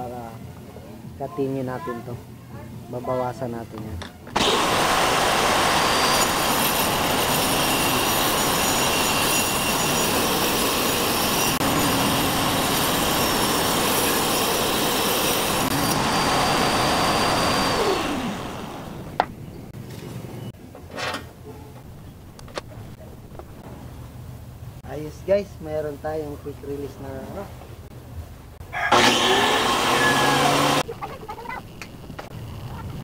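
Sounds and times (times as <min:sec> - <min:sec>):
saw blade whining: 0:04.4 - 0:19.3, 0:28.8 - 0:30.9.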